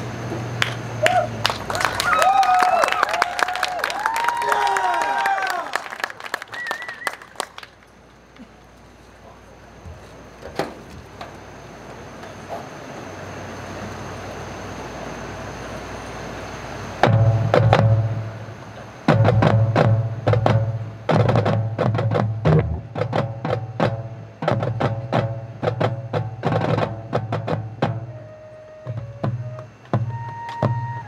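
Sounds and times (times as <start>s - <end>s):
steady background noise: 0.0s - 31.0s
drumline drum strikes: 17.0s - 31.0s.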